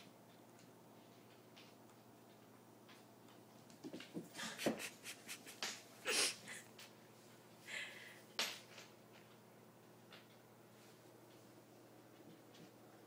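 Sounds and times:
cats scuffling on wooden floor: 0:00.9 - 0:05.8.

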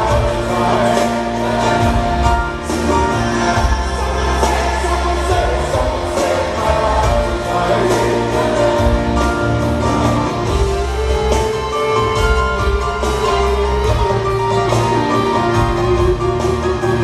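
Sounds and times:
man singing a pop ballad: 0:00.0 - 0:09.2
band playing: 0:00.0 - 0:17.0
grand piano: 0:00.0 - 0:17.0.

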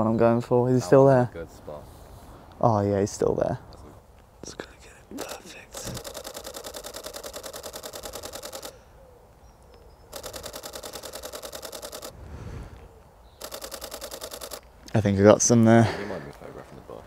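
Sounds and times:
camera shutter bursts: 0:05.1 - 0:08.8, 0:10.1 - 0:12.2, 0:13.4 - 0:14.7.

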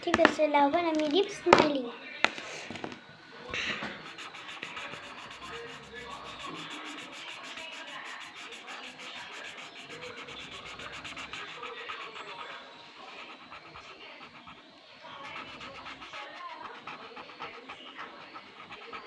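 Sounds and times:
pen scribbling on paper: 0:03.5 - 0:19.0.

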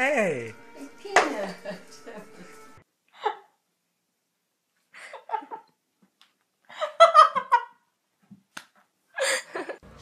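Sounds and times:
person giggling: 0:09.2 - 0:09.8.

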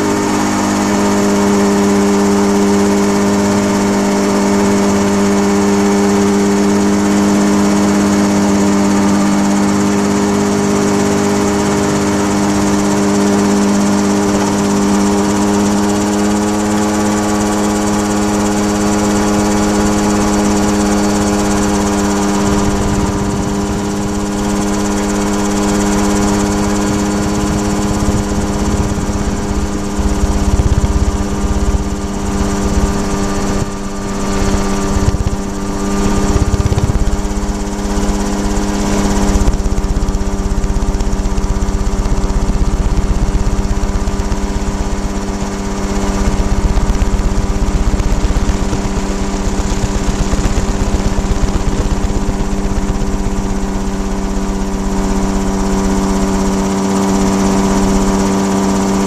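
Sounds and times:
model aircraft engine running: 0:00.0 - 0:59.0
wind buffeting microphone: 0:19.4 - 0:55.5.

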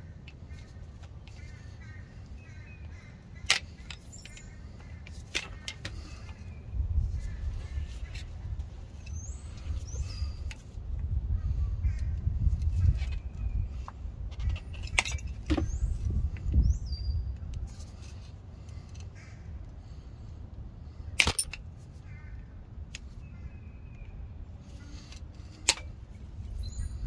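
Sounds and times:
low wind rumble: 0:00.0 - 0:27.0.

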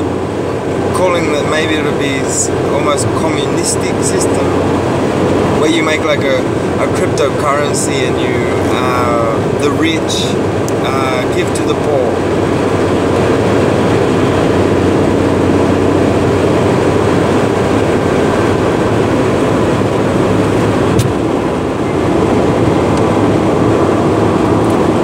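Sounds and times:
vehicle road noise rumble: 0:00.0 - 0:25.0.

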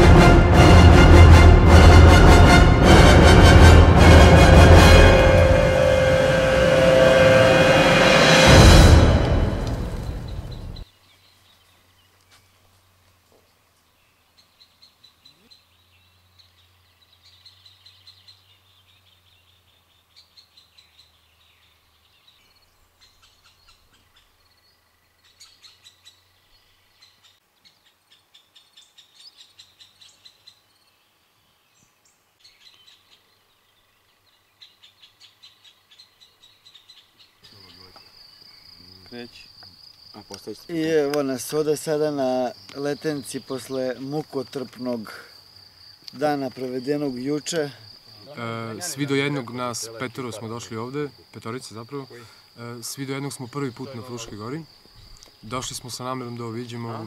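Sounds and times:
continuous high trill: 0:02.8 - 0:10.8.

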